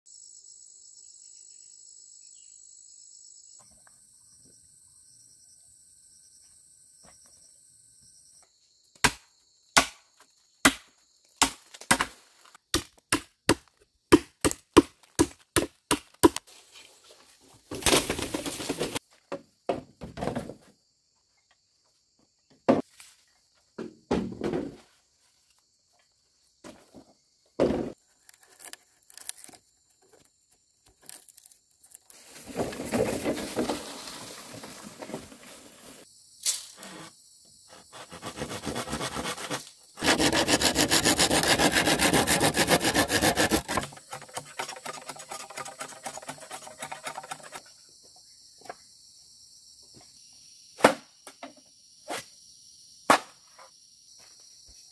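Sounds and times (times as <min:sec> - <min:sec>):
faint insect chirring: 0:00.1 - 0:11.4, 0:36.0 - 0:38.0, 0:46.8 - 0:54.9
chopping into bamboo: 0:09.0 - 0:16.5, 0:38.3 - 0:47.6, 0:53.1 - 0:53.4
bamboo splintering: 0:10.6 - 0:16.5, 0:28.2 - 0:29.6, 0:30.9 - 0:32.2, 0:38.0 - 0:47.6.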